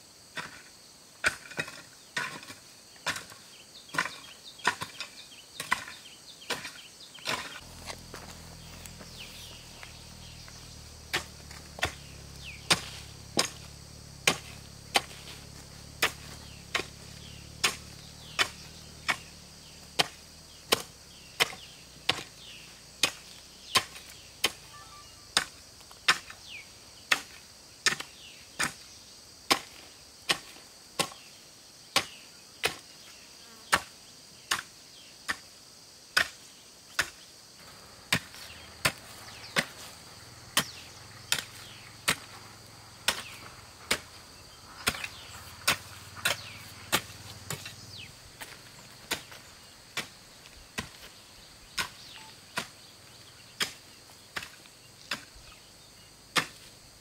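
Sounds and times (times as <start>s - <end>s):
insects droning: 0.0s - 57.0s
hand tool chopping: 0.4s - 24.6s, 25.4s - 26.4s, 27.1s - 28.9s, 29.5s - 31.2s, 37.0s - 37.2s, 38.1s - 39.9s, 40.5s - 42.4s, 43.0s - 44.2s, 44.8s - 47.8s, 48.4s - 51.1s, 51.7s - 52.8s, 53.6s - 55.5s, 56.3s - 56.7s.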